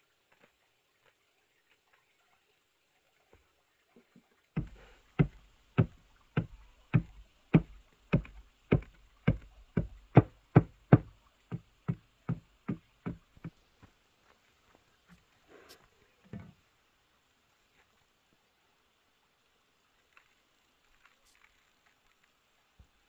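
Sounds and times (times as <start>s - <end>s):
hand tool striking wood: 4.6s - 13.6s.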